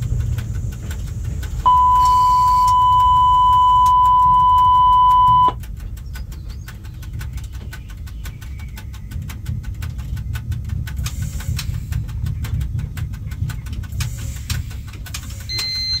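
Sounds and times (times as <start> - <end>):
low rumble with rapid clicking: 0.0 - 16.0
short high electronic beep: 1.7 - 5.6.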